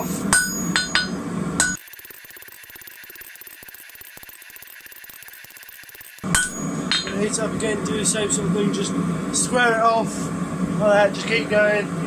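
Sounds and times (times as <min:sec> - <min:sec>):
hammer ringing on anvil: 0:00.0 - 0:01.8, 0:06.2 - 0:07.4.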